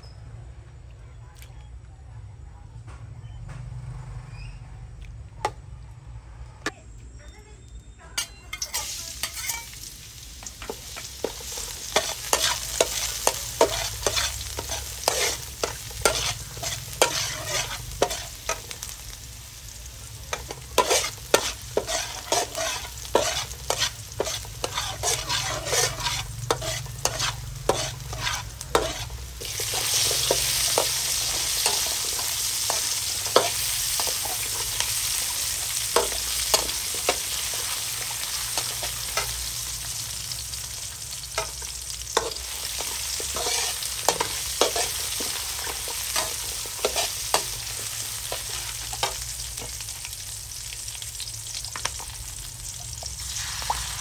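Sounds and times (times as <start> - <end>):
garlic sizzling in a wok: 7.3 - 54.0
metal spatula scraping wok: 8.2 - 19.5, 20.2 - 50.3.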